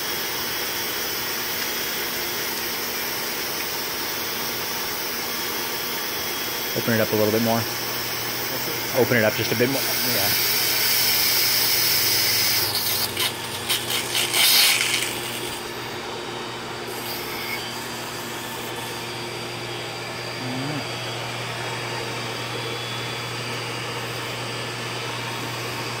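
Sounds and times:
pool pump hum: 0.0 - 26.0.

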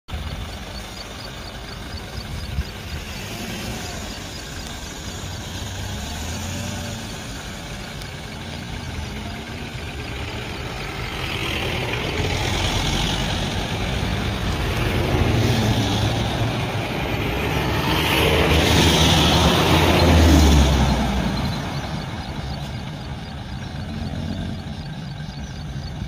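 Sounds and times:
vehicle engines idling: 0.1 - 26.0.

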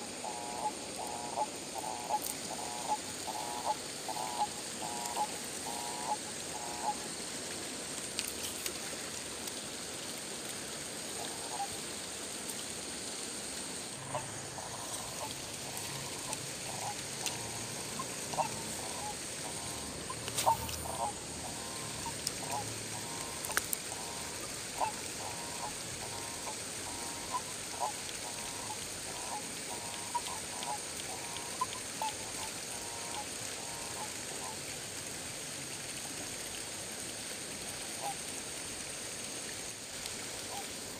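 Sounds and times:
frog croaking: 0.0 - 7.2, 11.1 - 11.8, 13.9 - 34.6
steady high hiss: 0.0 - 40.9.

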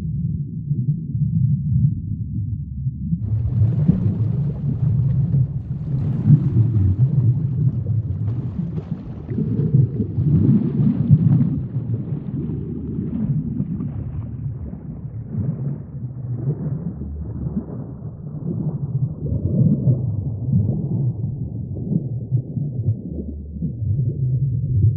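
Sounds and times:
low rumble of sea water: 0.0 - 24.9.

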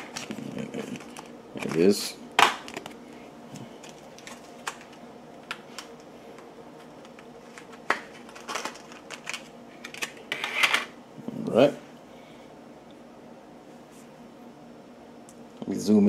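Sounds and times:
plastic packaging rustle: 0.0 - 5.0, 6.9 - 10.3.

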